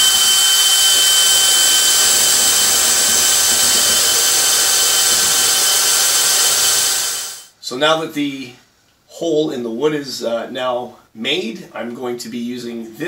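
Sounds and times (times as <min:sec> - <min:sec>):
cordless drill boring into wood: 0:00.0 - 0:07.5.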